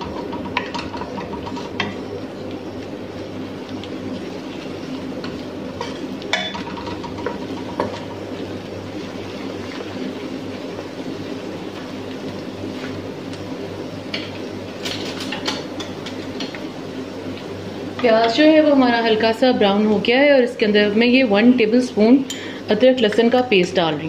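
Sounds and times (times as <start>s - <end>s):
low mechanical hum: 0.0s - 24.0s
onions frying in oil: 0.0s - 24.0s.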